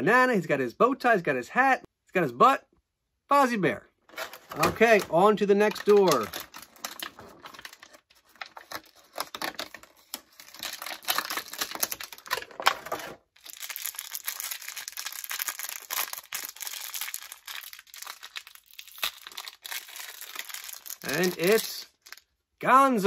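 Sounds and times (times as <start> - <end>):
plastic packaging crinkling: 4.1 - 22.4.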